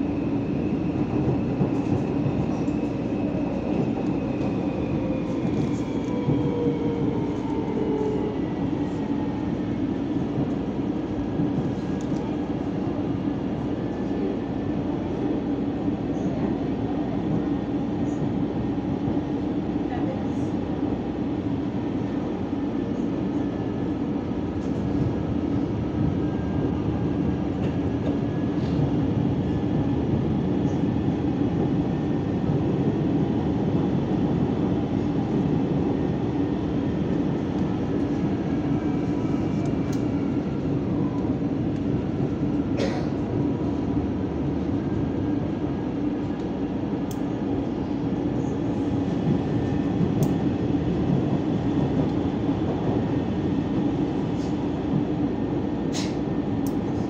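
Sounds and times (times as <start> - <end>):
train rumble inside carriage: 0.0 - 57.0.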